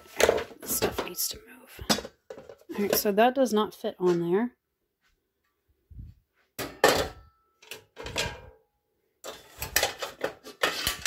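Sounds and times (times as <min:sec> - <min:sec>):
pans clattering together: 0:00.0 - 0:01.2, 0:01.9 - 0:03.0, 0:06.6 - 0:08.6, 0:09.2 - 0:11.0.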